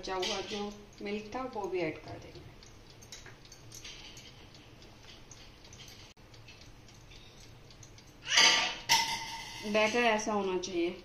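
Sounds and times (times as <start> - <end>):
whisk ticking against glass bowl: 0.0 - 11.0.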